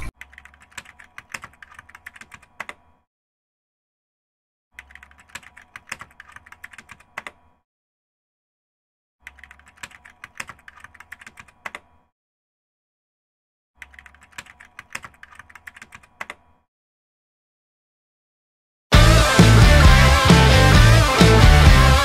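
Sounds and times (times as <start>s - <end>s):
computer keyboard typing: 0.0s - 3.0s, 4.8s - 7.5s, 9.2s - 12.0s, 13.8s - 16.6s.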